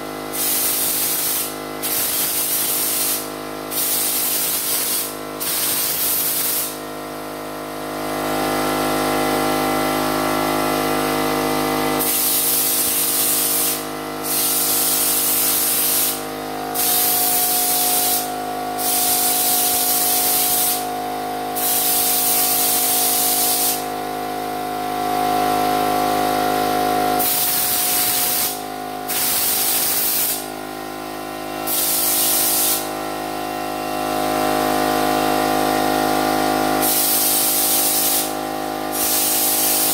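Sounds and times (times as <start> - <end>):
steady machine hum: 0.0 - 39.9
spray gun hissing: 0.4 - 6.8, 12.0 - 16.2, 16.8 - 20.9, 21.6 - 23.8, 27.2 - 30.4, 31.7 - 32.9, 36.8 - 38.3, 39.0 - 39.9.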